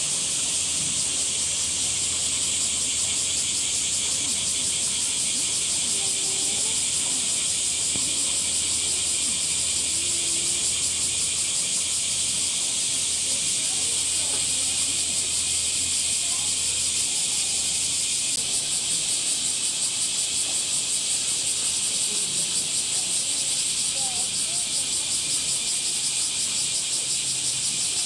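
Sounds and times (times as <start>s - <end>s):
cicadas buzzing: 0.0s - 28.0s.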